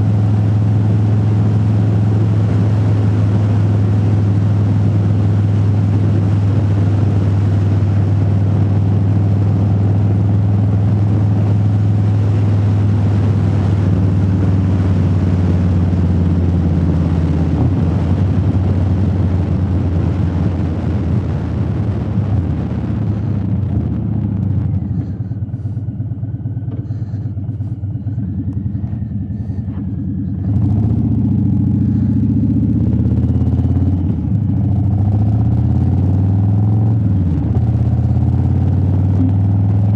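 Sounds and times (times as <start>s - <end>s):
wind rush in helmet: 0.0s - 36.3s
motorcycle engine: 0.0s - 39.9s.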